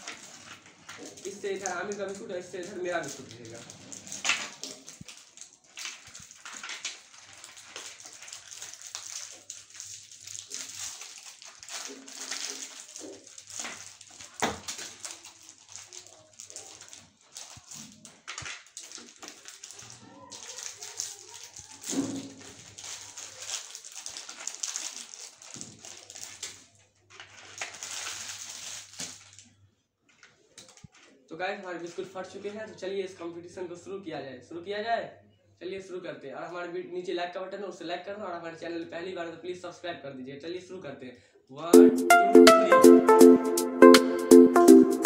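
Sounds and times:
plastic wrappers crinkling and tearing: 0.0 - 32.6.

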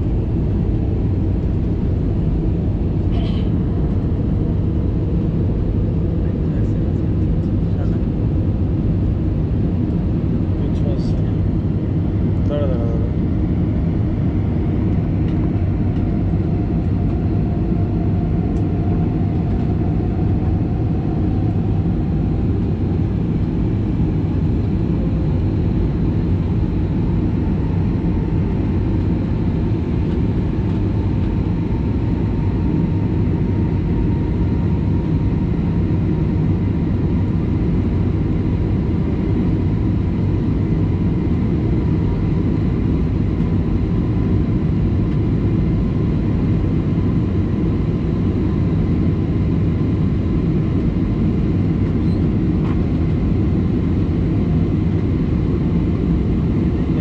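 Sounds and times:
airliner cabin engine noise: 0.0 - 57.0
faint rising whine: 13.2 - 29.5.

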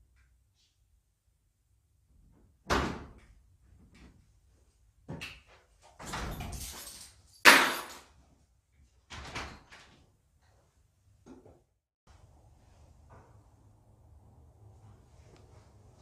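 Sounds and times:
door opening and shutting: 5.9 - 6.9.

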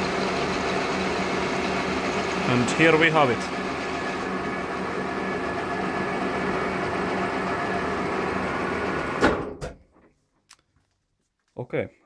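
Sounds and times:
milling machine motor humming: 0.0 - 9.3.

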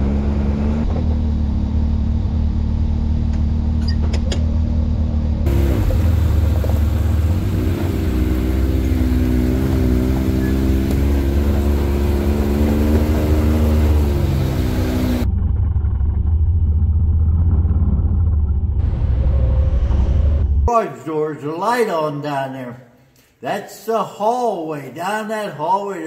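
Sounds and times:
utility vehicle engines rumbling: 0.0 - 20.7.

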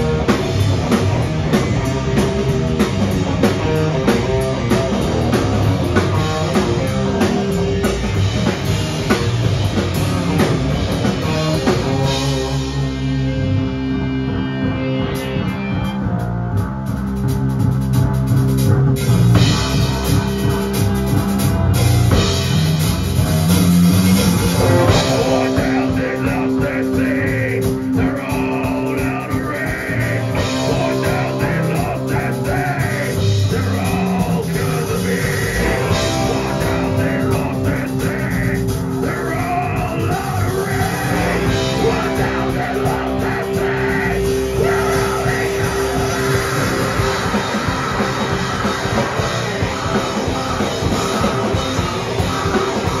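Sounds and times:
bass guitar: 0.0 - 53.0
distorted electric guitars: 0.0 - 53.0
drum kit: 0.0 - 53.0
person singing into microphone: 24.6 - 47.5.

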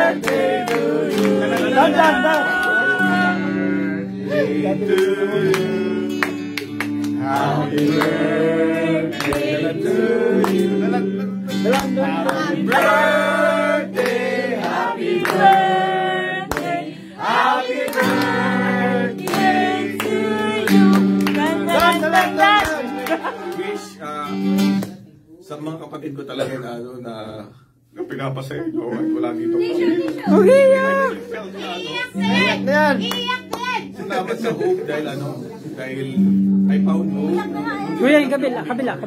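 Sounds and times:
group of people singing: 0.0 - 24.0
guitar accompaniment: 0.0 - 25.2, 28.8 - 39.0.

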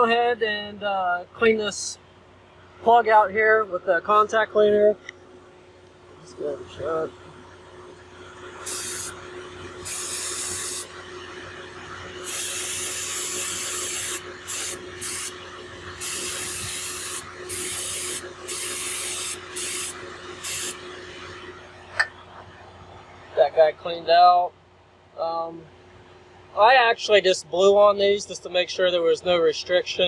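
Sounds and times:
aerosol spray hissing: 8.6 - 9.1, 9.8 - 10.9, 12.2 - 15.3, 16.0 - 20.8.

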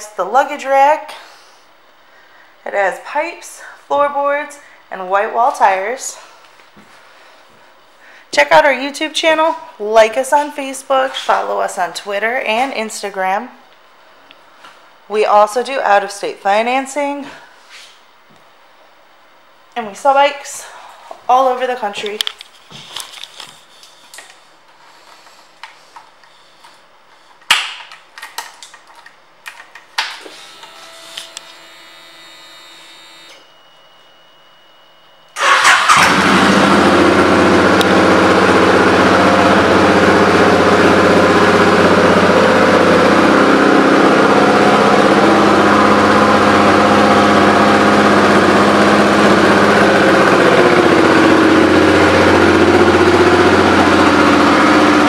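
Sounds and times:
motorcycle engine starting and idling: 35.4 - 55.0.

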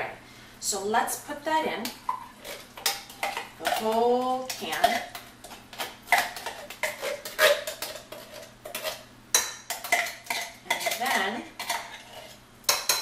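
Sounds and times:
metal spoon scraping in tin can: 2.4 - 13.0.

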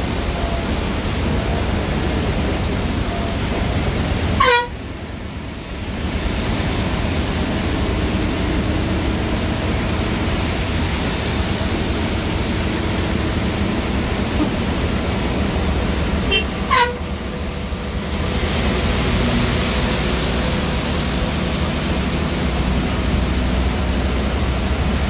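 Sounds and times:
heavy rain: 0.0 - 25.0
road noise inside bus: 0.0 - 25.0
horn blast: 4.3 - 4.9, 16.2 - 17.3.

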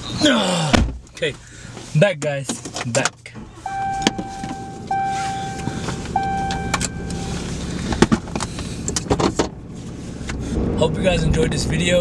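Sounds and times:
car warning chime dinging: 3.6 - 7.8.

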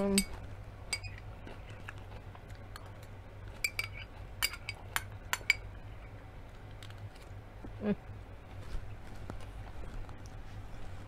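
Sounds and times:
metal spoon clinking on glass bowl: 0.0 - 1.2, 3.6 - 5.6.

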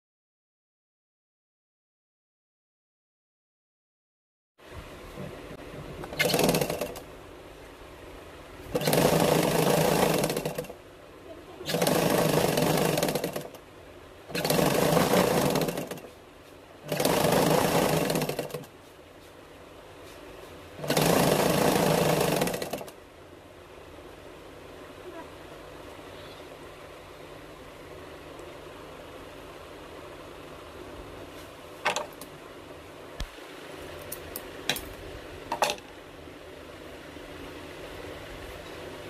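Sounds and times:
sewing machine stitching: 6.0 - 7.1, 8.7 - 10.8, 11.6 - 13.6, 14.3 - 16.2, 16.8 - 18.7, 20.8 - 23.0.

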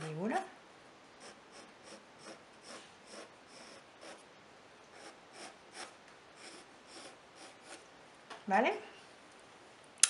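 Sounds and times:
pencil scratching on paper: 1.2 - 4.2, 4.9 - 7.8.

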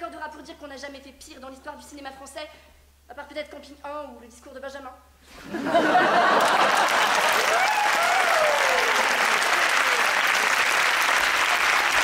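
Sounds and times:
laughter: 5.4 - 7.6
audience clapping: 6.3 - 12.0.

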